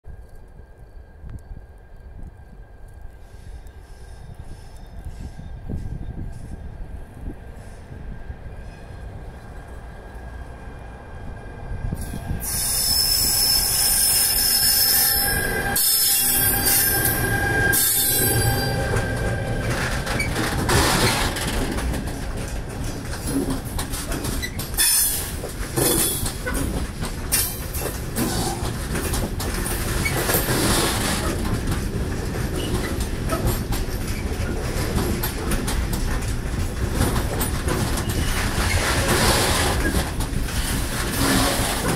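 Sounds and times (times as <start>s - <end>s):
freight train rumbling: 0.1s - 41.9s
train wheels squealing on rails: 0.5s - 9.7s, 11.8s - 41.9s
wagon wheels and couplings clanking: 15.8s - 41.9s.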